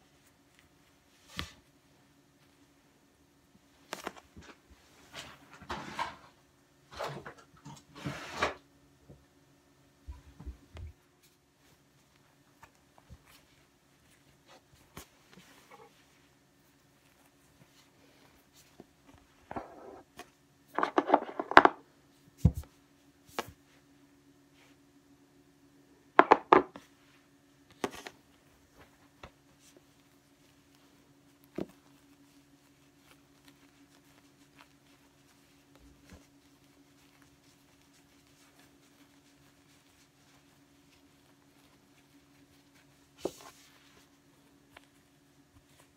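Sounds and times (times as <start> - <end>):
faint steady hum: 0.0 - 45.9
fabric rustling on table: 10.1 - 23.9, 26.2 - 45.9.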